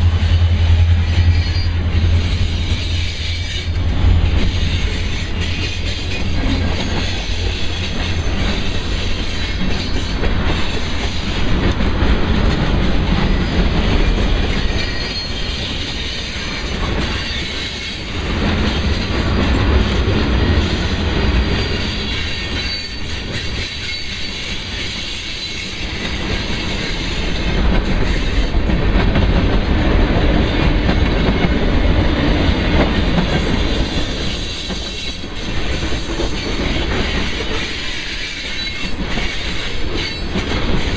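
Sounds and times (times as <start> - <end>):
train rumble: 0.0 - 40.9
train wheels clacking: 0.0 - 40.9
high wheel squeal: 0.3 - 3.8, 13.3 - 19.1, 20.4 - 27.4.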